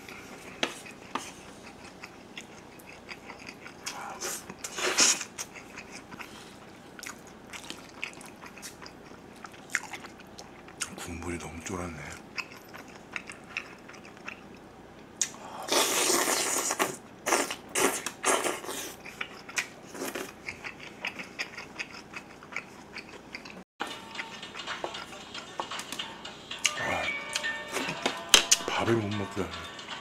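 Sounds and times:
chewing with wet mouth clicks: 0:00.8 - 0:10.9, 0:12.3 - 0:15.4, 0:16.7 - 0:23.6.

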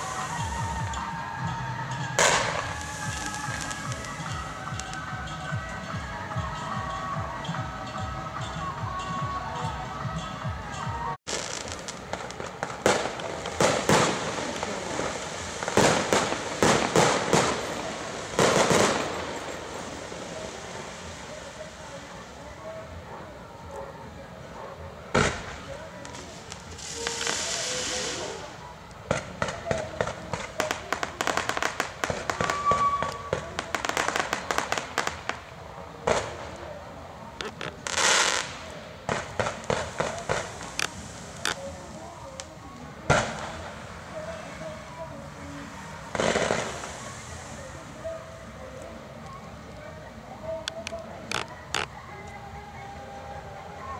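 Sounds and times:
firework whistle: 0:00.0 - 0:06.0, 0:25.2 - 0:28.6, 0:29.3 - 0:35.4
fireworks crackling: 0:00.0 - 0:53.9
fireworks sharp bangs: 0:02.0 - 0:05.4, 0:11.3 - 0:22.0, 0:25.1 - 0:36.6, 0:37.4 - 0:48.2.

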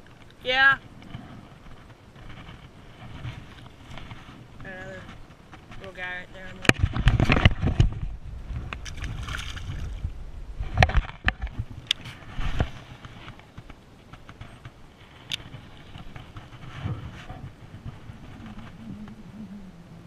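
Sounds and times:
rustling through long grass: 0:00.1 - 0:19.6
low rumble: 0:06.8 - 0:12.6, 0:16.8 - 0:20.0.

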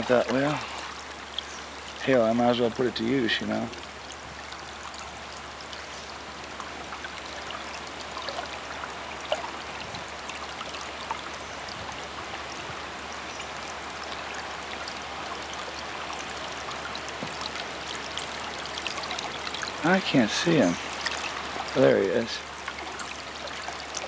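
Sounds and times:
floodwater flowing and gurgling: 0:00.0 - 0:24.0
water trickles and splashes: 0:00.0 - 0:24.0.

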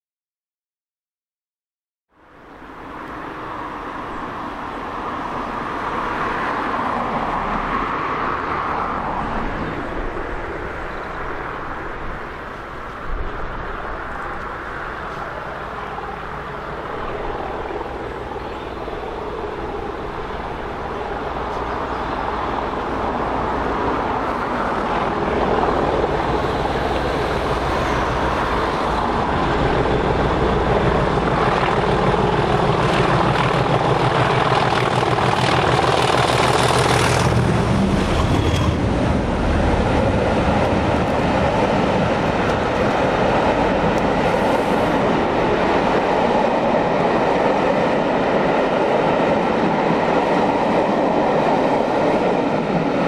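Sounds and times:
diesel locomotive engines drumming: 0:14.0 - 0:53.0.

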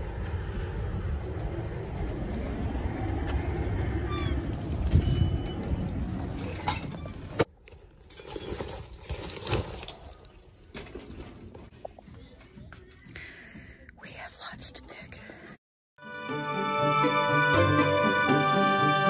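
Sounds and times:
traffic: 0:00.0 - 0:08.0
metal shopping cart rattling: 0:08.0 - 0:11.7.

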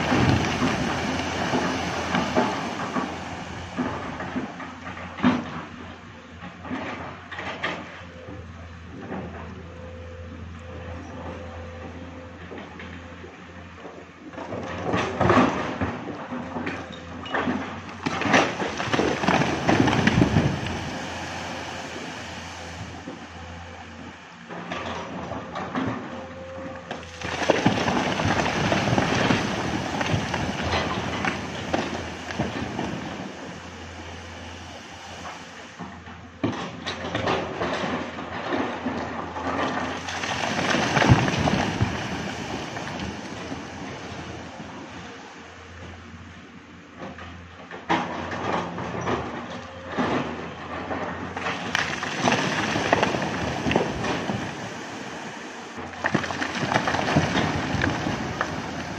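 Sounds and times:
earth and rock tumbling down cliff: 0:27.2 - 0:33.1, 0:40.0 - 0:43.6, 0:51.4 - 0:54.6, 0:56.0 - 0:58.9.

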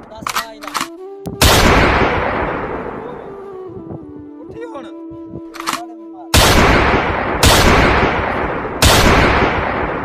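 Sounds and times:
pistol shots: 0:00.3 - 0:02.9, 0:06.4 - 0:10.0.

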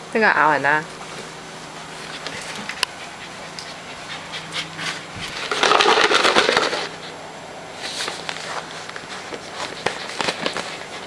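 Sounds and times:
puppy panting: 0:01.9 - 0:07.2, 0:08.9 - 0:11.0.

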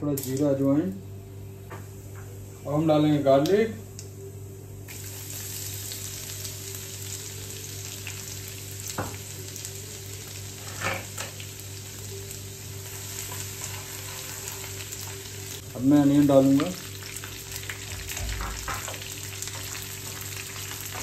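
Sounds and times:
garlic sizzling in hot oil: 0:04.9 - 0:21.0.

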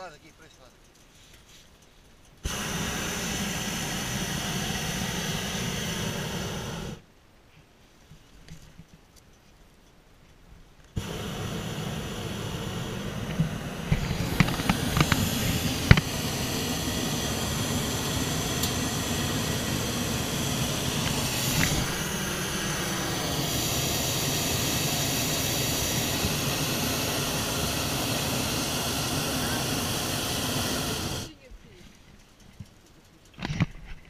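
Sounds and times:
propane burner hissing: 0:02.4 - 0:07.0, 0:10.9 - 0:31.4.

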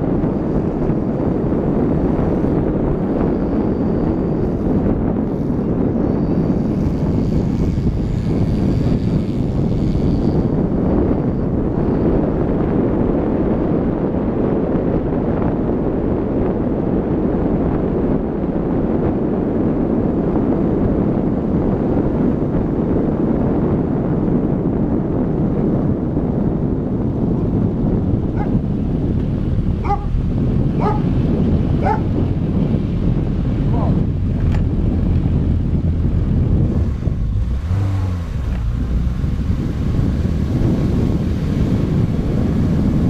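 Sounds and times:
car driving noise: 0:00.0 - 0:43.0
dog barking: 0:28.3 - 0:28.6, 0:29.8 - 0:30.1, 0:30.8 - 0:31.1, 0:31.8 - 0:32.1.

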